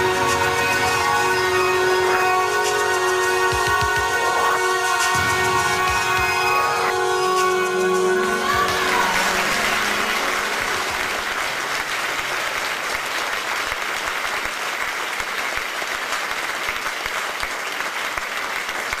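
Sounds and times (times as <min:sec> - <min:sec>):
music final note: 0:00.0 - 0:12.3
audience applauding: 0:00.0 - 0:19.0.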